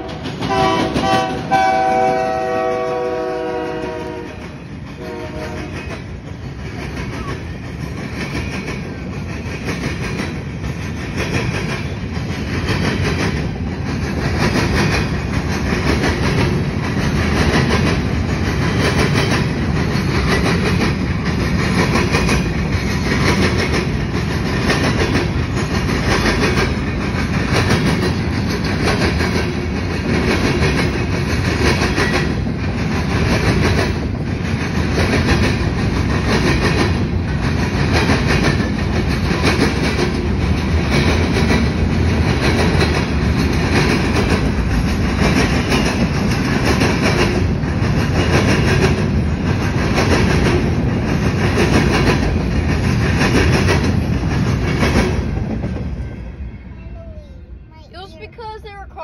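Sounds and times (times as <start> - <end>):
freight train wheels clacking: 0.0 - 56.4.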